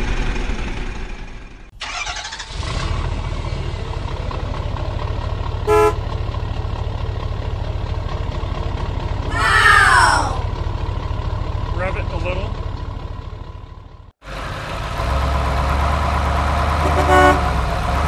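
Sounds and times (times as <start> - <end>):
truck engine running: 0.0 - 18.0
horn toot: 5.7 - 6.0, 16.8 - 17.5.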